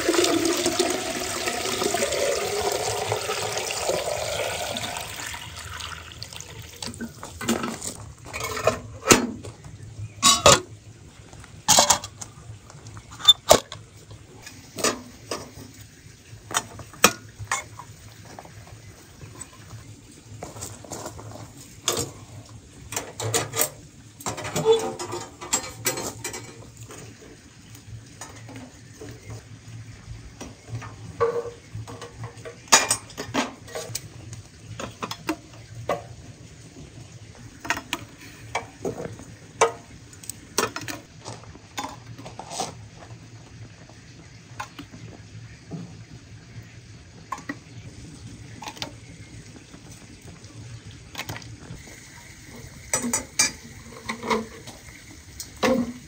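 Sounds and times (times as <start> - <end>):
tongs and charcoal against metal: 6.8 - 10.8, 14.4 - 15.8, 16.5 - 18.5, 20.4 - 29.4, 30.6 - 36.1, 37.4 - 46.1, 47.2 - 51.9, 52.5 - 56.0.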